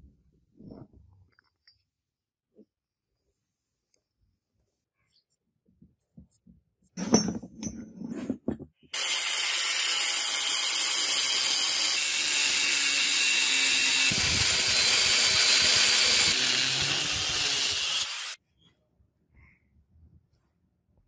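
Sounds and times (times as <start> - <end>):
angle grinder cutting metal: 9.0 - 18.4.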